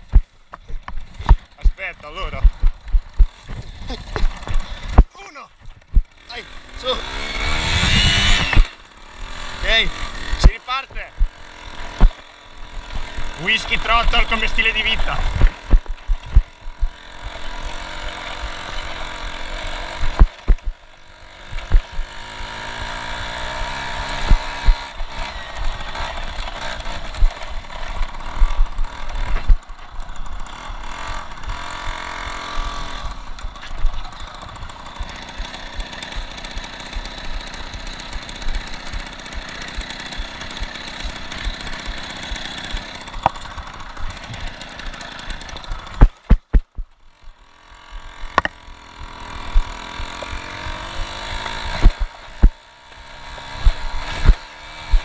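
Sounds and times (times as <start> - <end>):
knocks and jolts from riding: 0.0 - 1.6, 7.6 - 8.8, 15.2 - 17.0, 20.0 - 20.8, 21.5 - 22.0, 24.2 - 29.6, 45.2 - 46.9, 49.5 - 52.6
moped engine running: 0.0 - 55.0.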